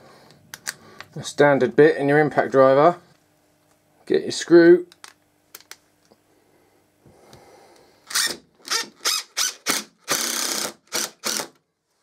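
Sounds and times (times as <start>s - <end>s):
impact driver motor spinning: 8.1s - 11.6s.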